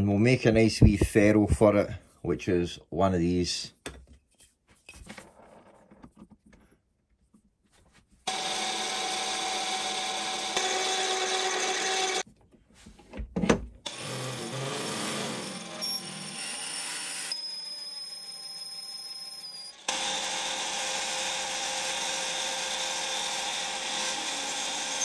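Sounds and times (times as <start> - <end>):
power tool running: 8.3 - 12.2, 13.9 - 18.0, 19.7 - 25.0.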